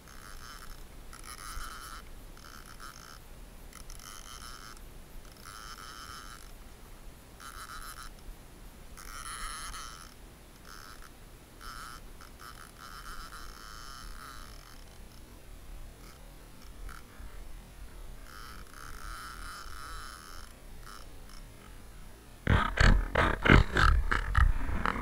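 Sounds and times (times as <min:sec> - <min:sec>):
fishing reel buzzing: 0:00.0 - 0:06.6, 0:07.4 - 0:08.2, 0:09.0 - 0:15.4, 0:16.0 - 0:17.2, 0:18.2 - 0:21.6.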